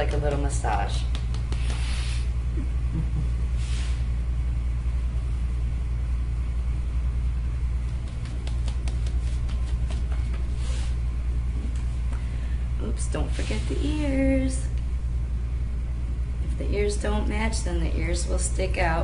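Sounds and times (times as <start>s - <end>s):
low room rumble: 0.0s - 19.0s
powder puff tapping skin: 0.7s - 1.9s, 7.8s - 10.4s.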